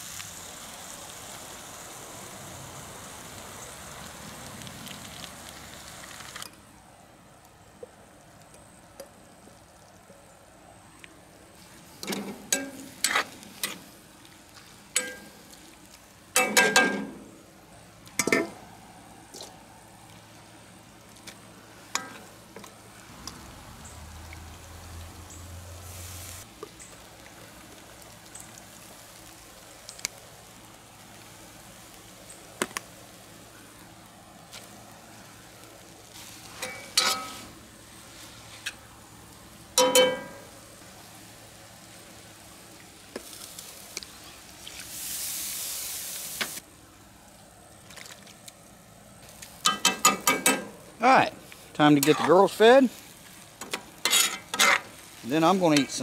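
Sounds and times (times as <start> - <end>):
faint frying sizzle: 0.0 - 56.0
metal spatula scraping a wok: 36.5 - 37.6, 54.0 - 55.0.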